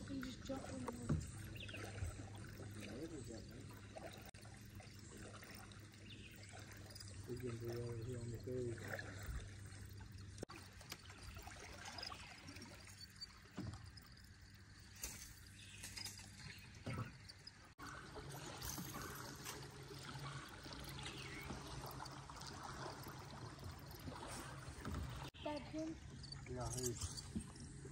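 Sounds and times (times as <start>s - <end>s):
low steady hum: 0.0s - 27.9s
water trickling and lapping: 0.0s - 27.9s
soft knocks and splashes: 8.7s - 25.4s.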